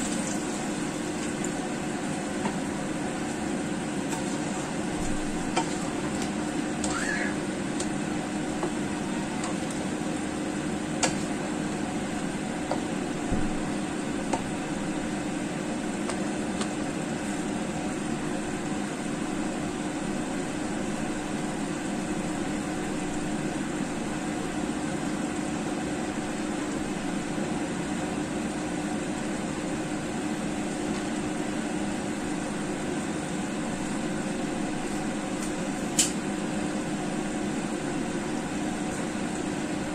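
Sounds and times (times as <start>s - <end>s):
kitchen fan humming: 0.0s - 39.9s.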